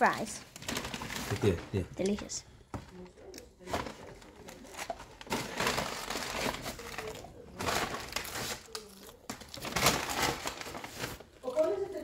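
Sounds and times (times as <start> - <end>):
paper carton crinkling: 0.5 - 1.7, 3.6 - 11.9.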